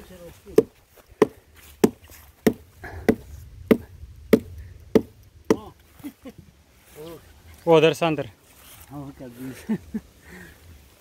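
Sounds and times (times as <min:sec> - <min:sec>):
axe chopping into a log: 0:00.6 - 0:05.7.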